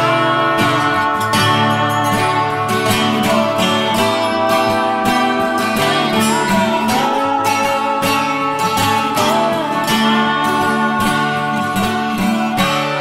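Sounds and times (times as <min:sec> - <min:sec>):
strummed acoustic guitar music: 0:00.0 - 0:13.0.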